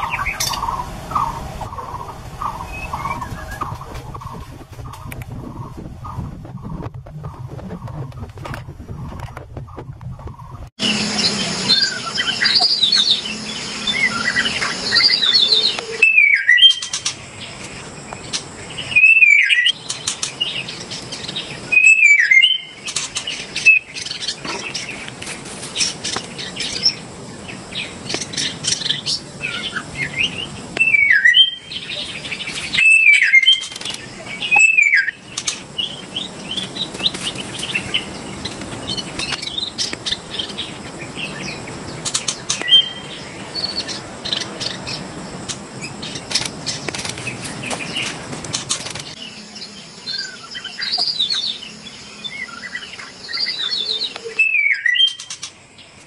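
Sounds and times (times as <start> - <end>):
bird singing whistled phrases: 10.8 - 16.9, 18.9 - 19.8, 21.7 - 22.8, 30.2 - 31.7, 32.7 - 33.7, 34.4 - 35.2, 52.4 - 55.2.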